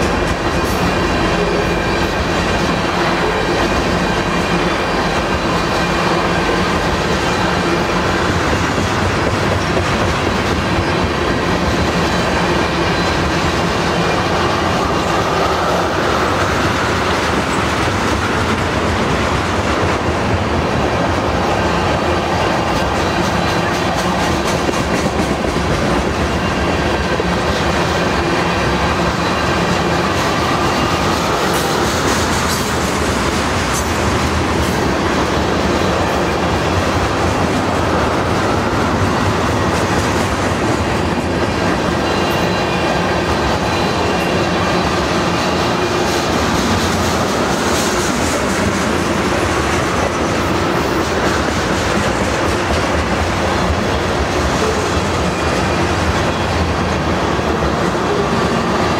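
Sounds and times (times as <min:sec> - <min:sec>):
train wheels rumbling on rails: 0:00.0 - 0:58.9
faint high wheel squeal: 0:41.8 - 0:46.5.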